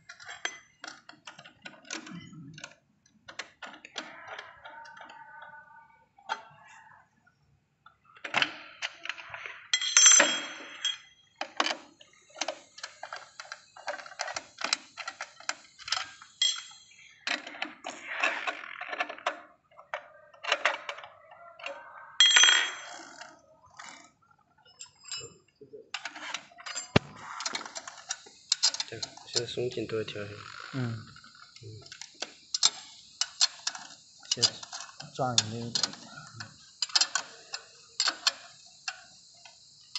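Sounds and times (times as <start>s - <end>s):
metal tools clinking: 9.8s - 11.1s, 15.8s - 17.0s, 22.2s - 23.2s, 26.6s - 27.1s
ringing metallic clanks: 9.8s - 11.1s, 16.4s - 16.9s, 22.2s - 23.0s.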